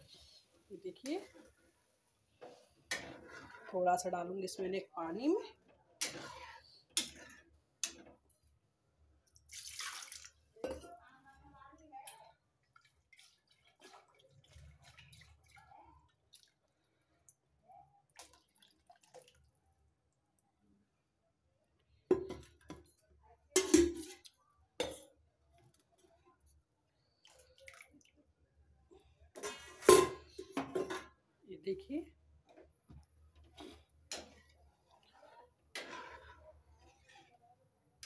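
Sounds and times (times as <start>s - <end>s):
faint drips and ticks: 11.8s - 17.4s, 18.1s - 19.6s
metal cookware clanking: 29.4s - 31.2s.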